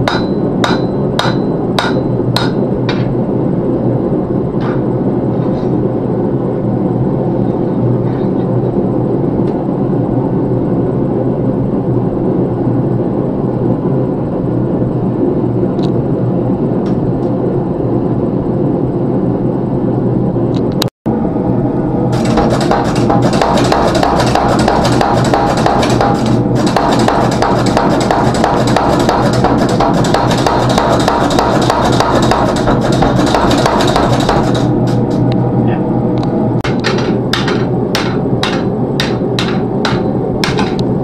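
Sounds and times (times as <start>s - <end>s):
hammer striking metal on anvil: 0.0s - 3.1s, 22.2s - 35.2s, 36.6s - 40.8s
forge blower roar: 0.0s - 41.0s.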